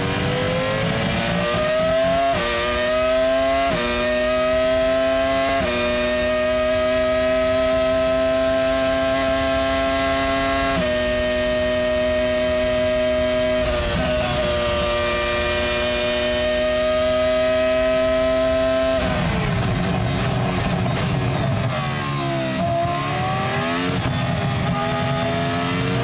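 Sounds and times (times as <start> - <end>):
race car engine accelerating: 0.0 - 26.0.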